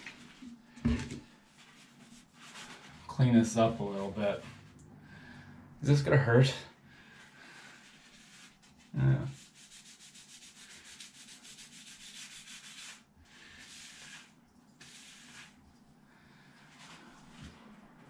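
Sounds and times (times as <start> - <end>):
paper towel rubbing on skin: 1.4 - 4.8, 7.2 - 16.0.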